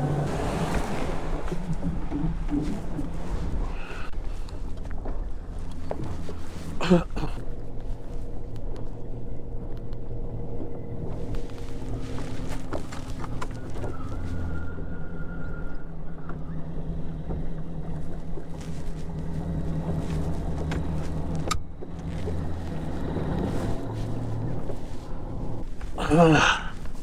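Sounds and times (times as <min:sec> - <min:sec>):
outboard motor running: 0:00.0 - 0:27.0
wind and water noise: 0:00.0 - 0:27.0.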